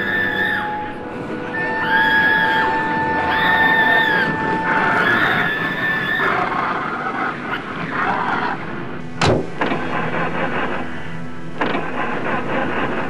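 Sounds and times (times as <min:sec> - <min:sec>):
steady rumbling: 0:00.0 - 0:13.0
sharp bang: 0:09.2 - 0:10.0.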